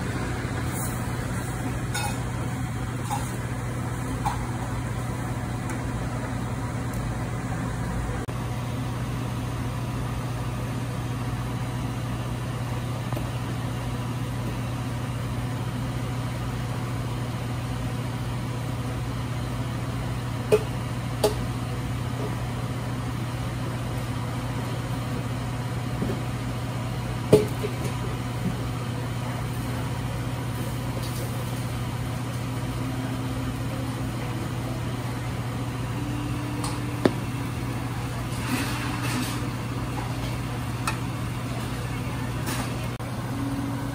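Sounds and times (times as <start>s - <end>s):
kitchen machinery hum: 0.0s - 43.9s.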